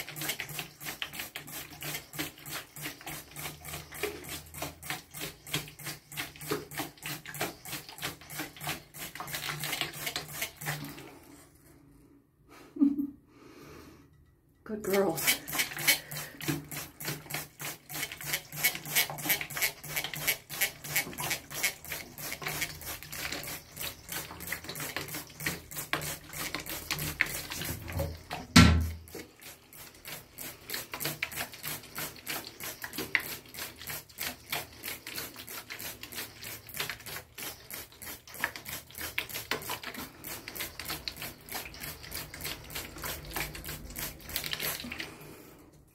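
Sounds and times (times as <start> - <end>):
clicking and pattering on bathtub: 0.0 - 11.8, 14.1 - 45.9.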